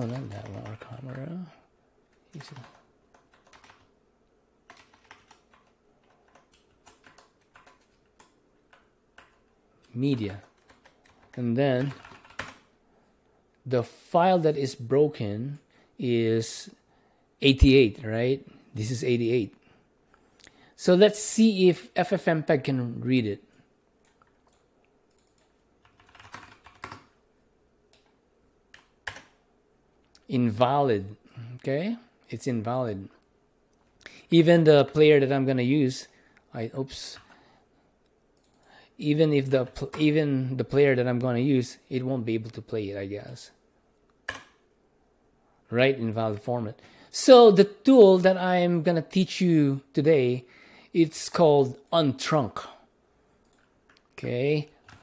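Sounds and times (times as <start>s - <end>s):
keyboard typing: 0.0s - 1.3s, 2.1s - 3.9s, 4.7s - 12.7s, 24.0s - 27.2s, 27.9s - 29.4s, 38.4s - 38.7s, 44.2s - 44.6s, 54.8s - 55.0s.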